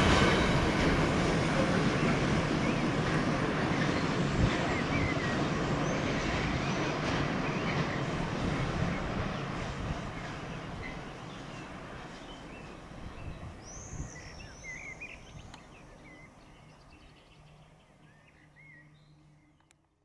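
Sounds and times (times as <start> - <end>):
freight train rumble: 0.0 - 19.4
birds chirping and singing: 3.7 - 19.7.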